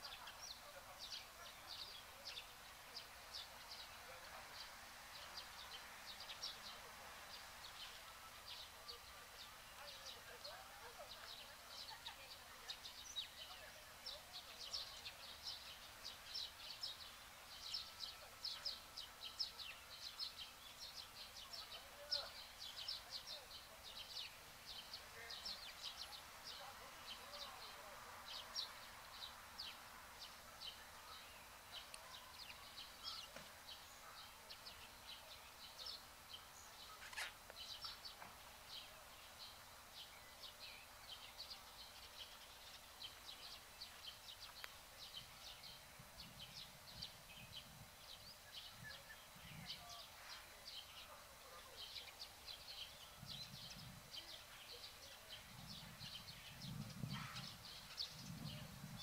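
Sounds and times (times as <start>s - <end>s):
birds chirping: 0.0s - 59.0s.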